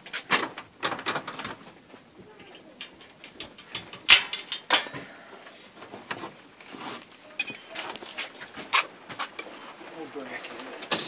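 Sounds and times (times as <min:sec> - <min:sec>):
metal tools clicking and knocking: 0:02.6 - 0:05.0, 0:07.4 - 0:07.7.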